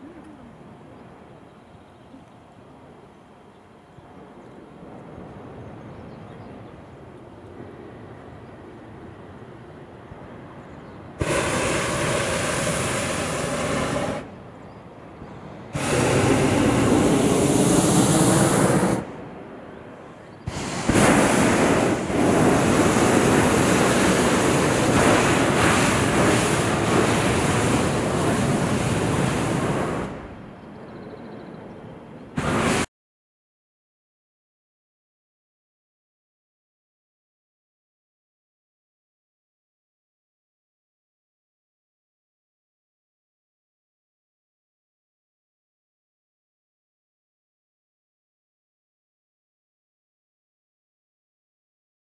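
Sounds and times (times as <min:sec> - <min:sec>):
propane burner blasts: 0:11.2 - 0:14.4, 0:15.7 - 0:19.3, 0:20.4 - 0:30.4, 0:32.4 - 0:32.9.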